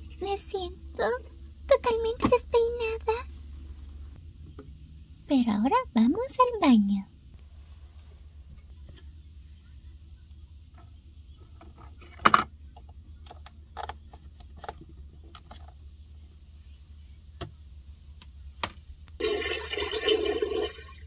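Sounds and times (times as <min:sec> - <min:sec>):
toy toilet flush effect: 0:19.2 - 0:21.0.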